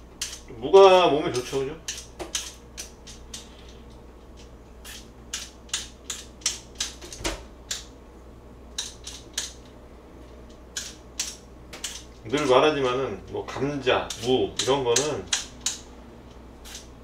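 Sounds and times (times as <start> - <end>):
blade scraping radish: 16.6 - 17.0.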